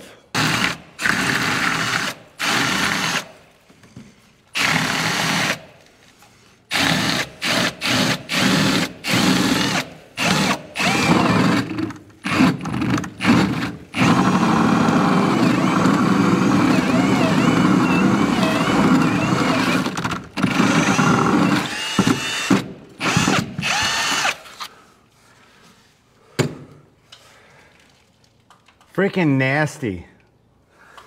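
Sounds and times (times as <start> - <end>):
cordless drill boring wood: 0.4 - 3.3, 4.6 - 5.6, 6.7 - 24.7.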